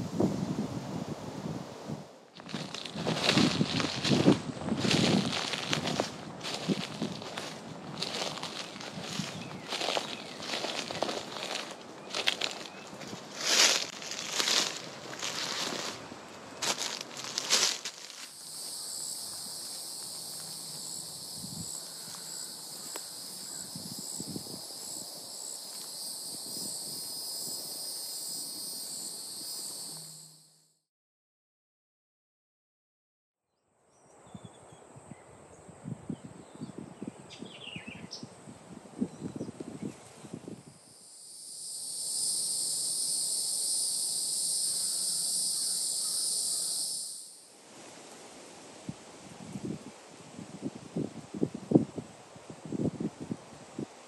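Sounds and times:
footsteps crunching on dry leaves: 2.4s - 23.9s
shrill insect chorus: 2.4s - 30.8s, 36.5s - 50.5s.

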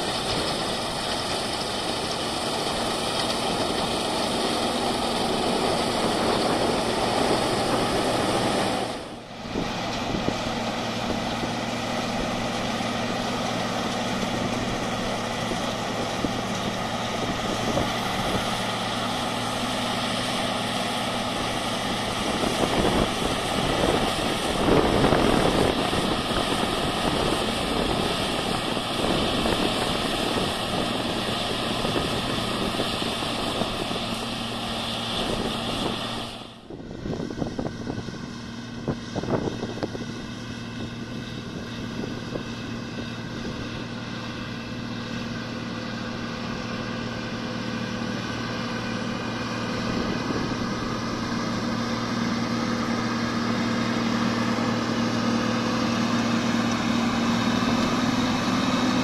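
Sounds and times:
combine harvester droning: 0.0s - 59.0s
constant hum: 0.0s - 59.0s.

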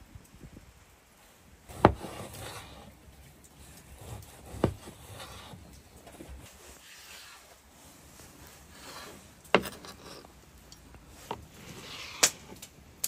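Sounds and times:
knife slicing and scraping: 1.7s - 3.0s, 3.6s - 10.4s.

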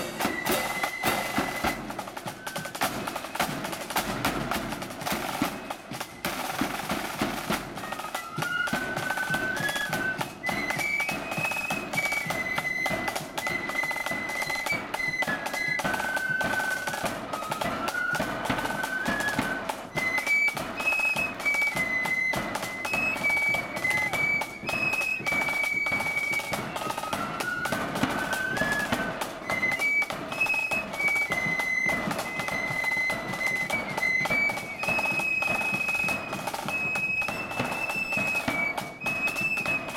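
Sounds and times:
hand cymbals clashing: 0.0s - 2.0s
drums: 0.0s - 39.9s
flutes playing melody: 0.0s - 39.9s.

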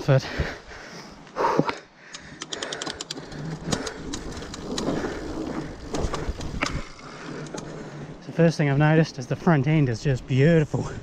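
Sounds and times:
rapid clicks: 2.1s - 7.8s
bike rattling: 2.2s - 11.0s
bike tyres rolling over dirt: 3.2s - 11.0s.

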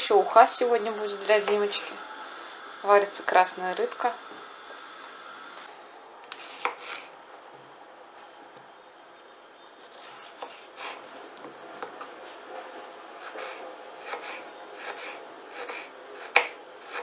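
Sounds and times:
knife cutting cucumber: 6.3s - 7.1s, 9.6s - 11.0s, 13.2s - 17.0s.

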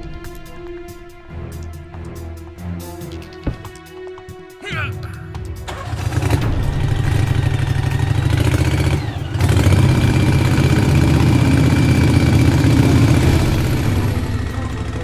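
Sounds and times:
motorboat engine rumbling: 5.9s - 15.0s.

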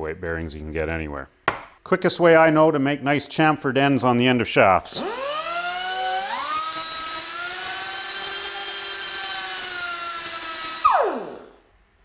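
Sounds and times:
motors whining: 5.0s - 11.6s
high-pitched grinding hiss: 5.8s - 11.4s.

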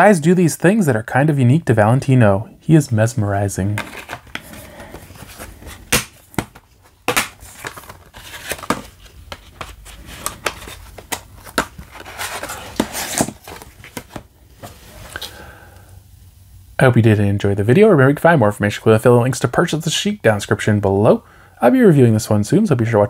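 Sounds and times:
card slipcover crinkling: 3.6s - 15.3s.

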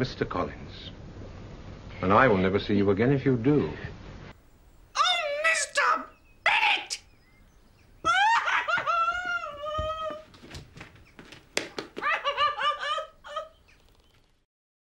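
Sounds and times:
woman's high-pitched cry: 8.0s - 10.3s.

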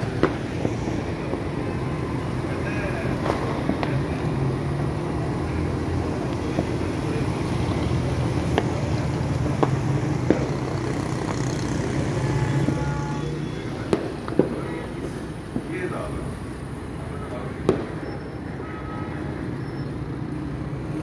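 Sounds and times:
distant fireworks popping: 0.0s - 16.2s, 17.2s - 18.7s.

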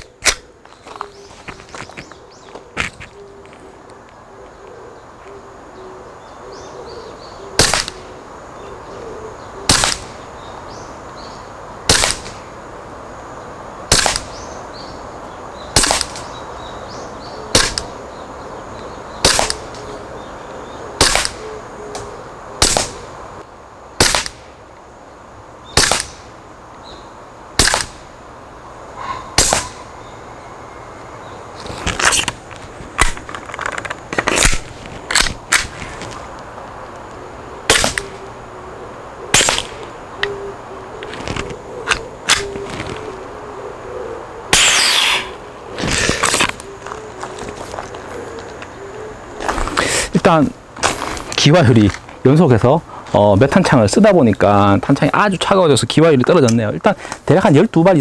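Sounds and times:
airsoft pistol shots: 7.6s - 8.0s, 9.7s - 10.1s, 11.9s - 12.3s, 13.9s - 14.4s, 15.8s - 16.3s, 17.5s - 17.8s, 19.2s - 19.6s, 21.0s - 21.4s, 22.6s - 23.0s, 24.0s - 24.4s, 25.8s - 26.2s, 27.6s - 28.0s, 29.4s - 29.8s, 37.7s - 38.0s, 39.3s - 39.8s, 44.5s - 45.4s.

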